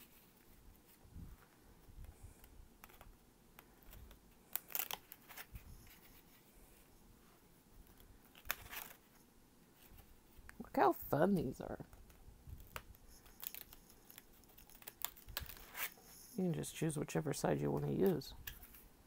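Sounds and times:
paper crackling: 0:02.4 - 0:06.4, 0:07.8 - 0:09.2, 0:11.9 - 0:16.4.

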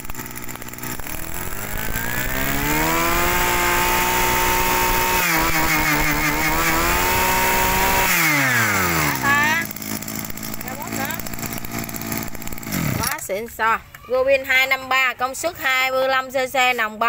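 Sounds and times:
brush cutter engine revving: 0:00.0 - 0:13.4.

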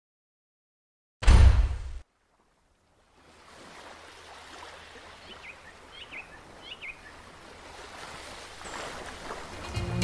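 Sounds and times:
water rushing: 0:02.2 - 0:10.0.

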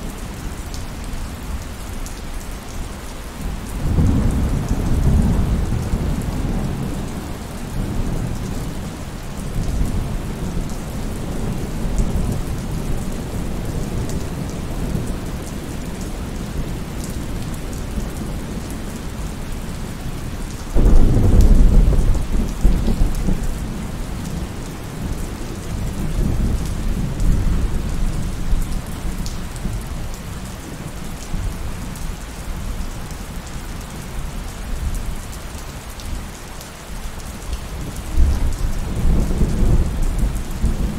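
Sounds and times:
steady rain: 0:00.0 - 0:40.9
rolling thunder: 0:20.8 - 0:29.0.

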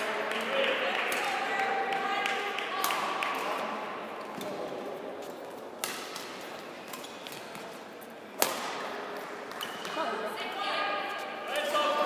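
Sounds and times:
racket hitting shuttlecock: 0:02.2 - 0:03.7, 0:05.8 - 0:07.6, 0:08.3 - 0:10.0.

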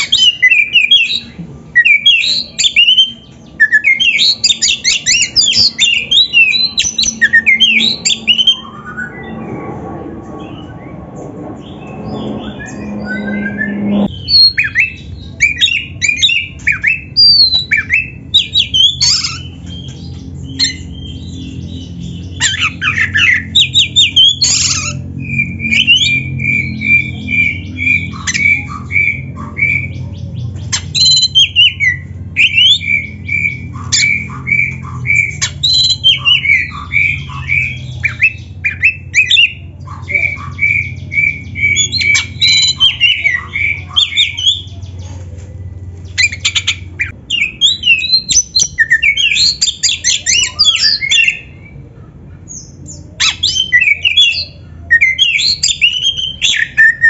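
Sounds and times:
magpie-robin singing: 0:00.0 - 0:09.5, 0:10.4 - 0:51.8, 0:52.5 - 0:57.0
low hum: 0:06.8 - 0:16.6
harsh rasping bird calls: 0:11.6 - 0:45.2.

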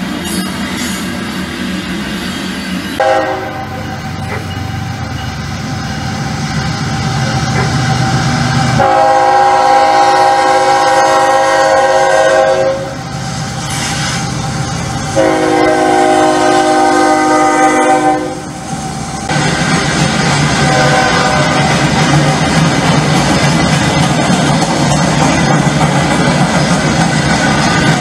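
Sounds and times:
locomotive air horn blasts: 0:03.0 - 0:03.8, 0:08.8 - 0:13.0, 0:15.2 - 0:18.5, 0:20.6 - 0:21.6.

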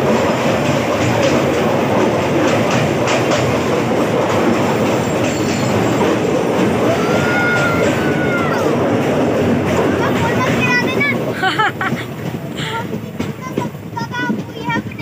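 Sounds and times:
rail joint clacks: 0:00.0 - 0:15.0
train wheels rumbling: 0:00.0 - 0:15.0
wheel squeal: 0:05.0 - 0:06.2.

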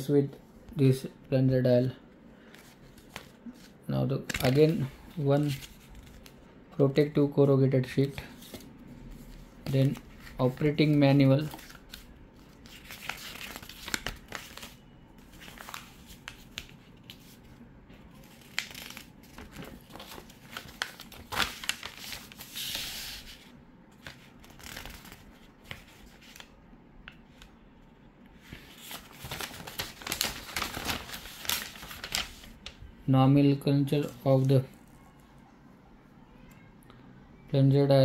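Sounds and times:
paper rustling and crinkling: 0:02.4 - 0:06.4, 0:08.0 - 0:17.4, 0:18.1 - 0:26.5, 0:28.4 - 0:32.8.

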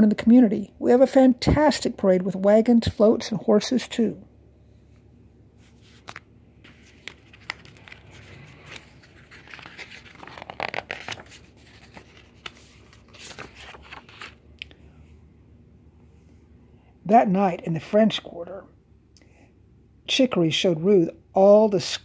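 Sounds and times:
paper pages rustling: 0:05.6 - 0:14.4.

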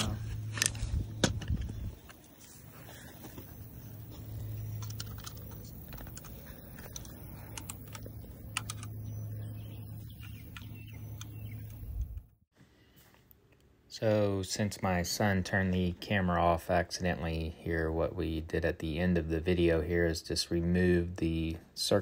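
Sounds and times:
low hum: 0:00.0 - 0:12.4
handling clicks and taps: 0:03.3 - 0:12.3.

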